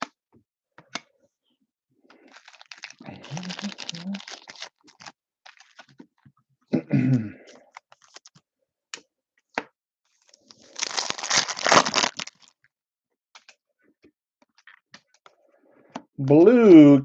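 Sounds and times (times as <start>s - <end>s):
foil wrapper tearing: 2.2s - 5.9s, 7.7s - 8.3s, 10.3s - 12.5s
cards and plastic sleeve rustling: 2.2s - 6.2s, 7.7s - 8.4s, 10.2s - 12.6s.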